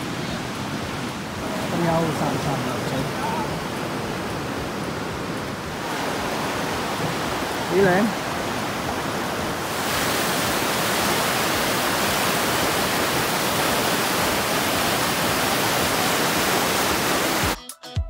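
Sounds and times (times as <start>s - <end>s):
river rushing over rapids: 0.0s - 17.6s
music with a beat: 17.6s - 18.0s.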